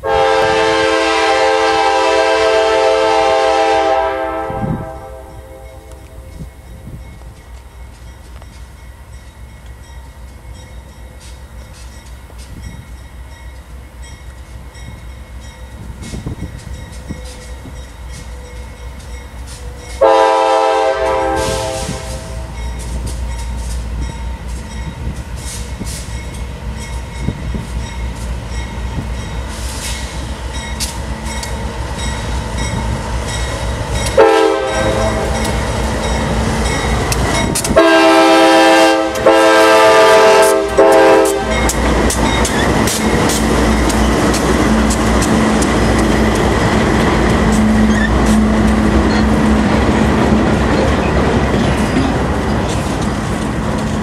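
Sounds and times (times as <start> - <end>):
multi-note locomotive horn: 0.0 - 6.4, 19.6 - 22.7, 34.0 - 36.3, 37.6 - 41.9, 47.4 - 49.8
locomotive engine rumble: 0.0 - 54.0.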